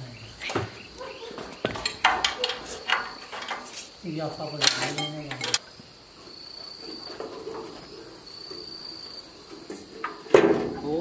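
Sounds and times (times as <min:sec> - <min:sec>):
cricket trilling: 0:00.0 - 0:11.0
faint handling noise: 0:01.3 - 0:05.6.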